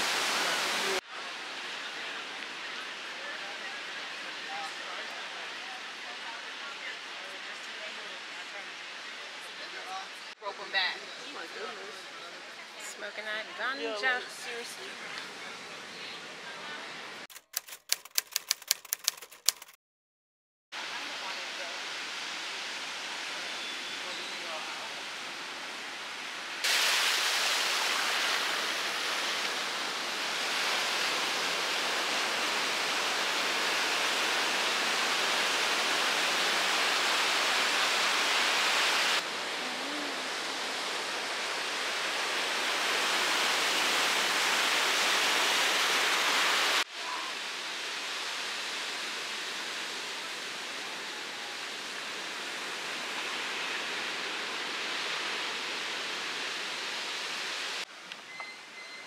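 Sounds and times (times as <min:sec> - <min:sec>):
sea surf on sandy beach: 0:00.0 - 0:10.0, 0:20.8 - 0:57.9.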